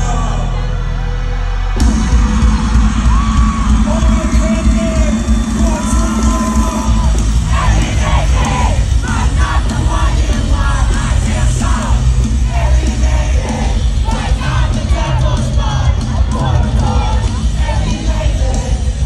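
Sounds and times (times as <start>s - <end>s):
live rock band playing loudly: 1.7s - 19.0s
yelled vocals: 5.8s - 19.0s.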